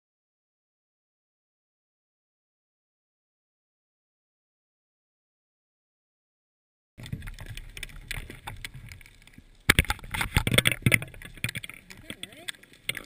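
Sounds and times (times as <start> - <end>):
clicks and knocks: 7.0 - 13.0.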